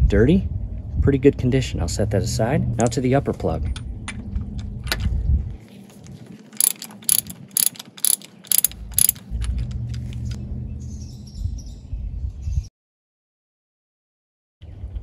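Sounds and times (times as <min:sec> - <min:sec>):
socket ratchet clicking: 0:06.6 - 0:09.3.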